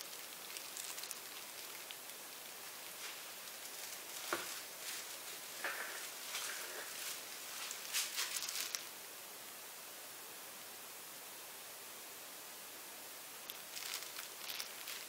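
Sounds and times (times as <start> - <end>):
plastic rustles and clicks: 0.0 - 8.9, 13.5 - 15.0
steady hiss: 0.0 - 15.0.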